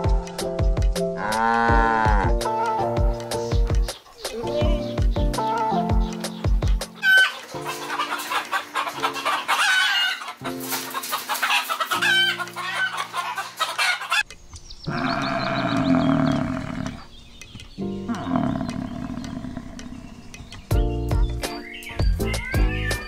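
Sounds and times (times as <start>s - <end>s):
background music with held notes: 0.0s - 14.6s, 15.3s - 23.0s
chickens clucking: 3.5s - 20.8s
rooster crowing: 9.0s - 10.3s.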